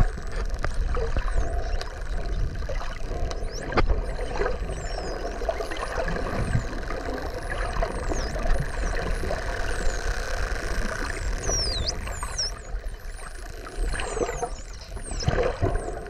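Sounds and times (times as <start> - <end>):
dolphins whistling underwater: 0.0 - 16.0
low underwater drone: 0.0 - 16.0.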